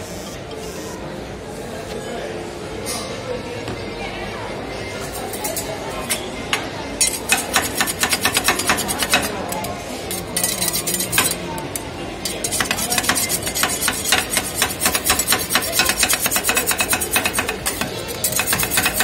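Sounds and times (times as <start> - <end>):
metal spatulas clinking on steel: 7.0 - 11.4, 12.2 - 19.0.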